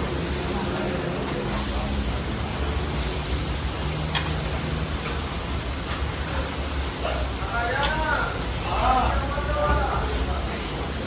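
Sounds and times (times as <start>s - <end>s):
meat sizzling in a pan: 2.8s - 9.1s.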